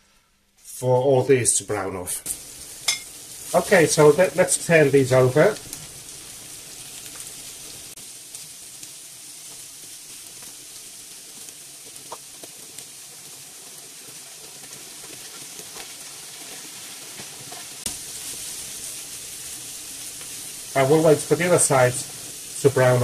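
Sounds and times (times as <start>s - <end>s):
chicken sizzling in a frying pan: 1.6s - 23.0s.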